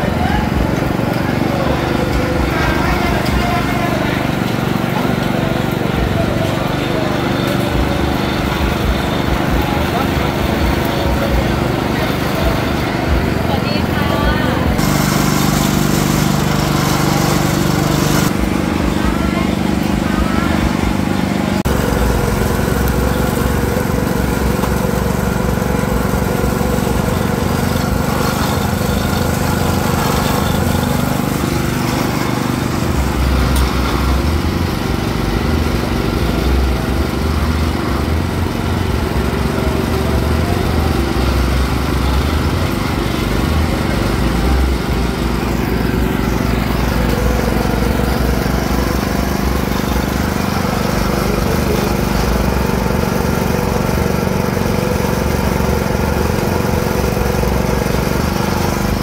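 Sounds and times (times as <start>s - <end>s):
juice press rollers crushing stalks: 0.0s - 59.0s.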